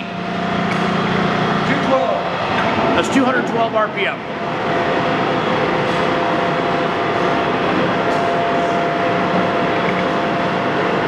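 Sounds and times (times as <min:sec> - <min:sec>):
lathe humming with faint whine: 0:00.0 - 0:11.0.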